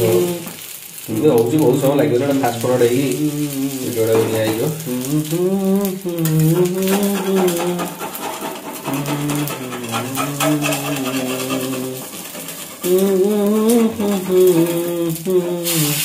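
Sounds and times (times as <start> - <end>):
person humming a slow tune: 0.0 - 0.6, 3.1 - 4.0, 4.8 - 16.0
omelette sizzling in a pan: 0.0 - 16.0.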